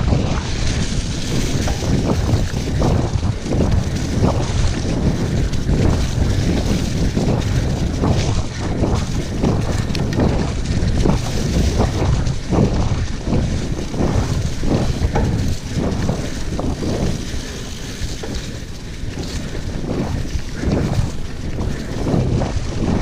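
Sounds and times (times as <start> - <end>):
bike rattling and knocking: 0.0 - 23.0
tyres rolling over leaves: 0.0 - 23.0
wind on microphone: 0.0 - 23.0.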